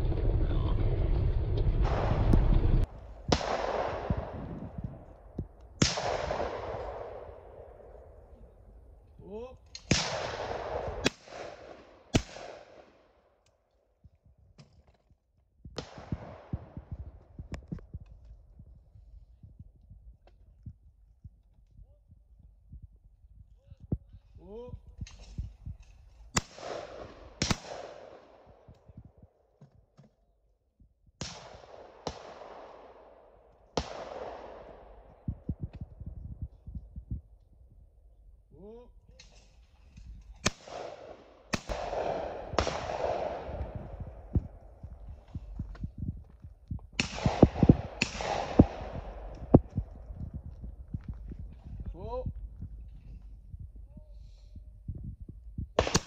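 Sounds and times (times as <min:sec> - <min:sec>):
shotgun shot echoing: 0:01.8 - 0:04.8, 0:05.8 - 0:08.0, 0:09.8 - 0:13.0, 0:26.4 - 0:28.5, 0:31.2 - 0:35.3, 0:40.4 - 0:44.4, 0:47.0 - 0:49.8, 0:55.8 - 0:56.0.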